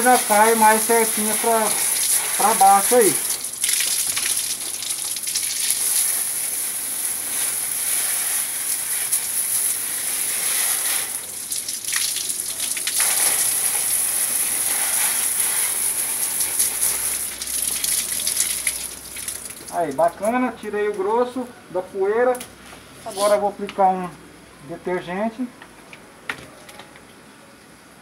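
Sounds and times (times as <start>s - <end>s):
hose water spraying on mesh screen: 0.0s - 19.8s.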